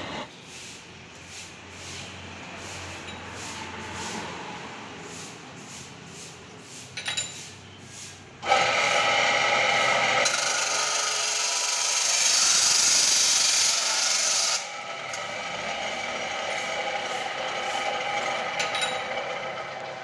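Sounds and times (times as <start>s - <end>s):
chop saw grinding metal: 8.4s - 20.0s.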